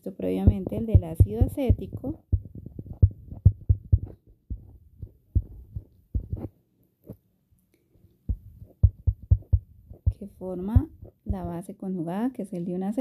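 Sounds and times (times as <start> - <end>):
stylus tapping on a screen: 0.4 - 6.5, 8.3 - 11.6.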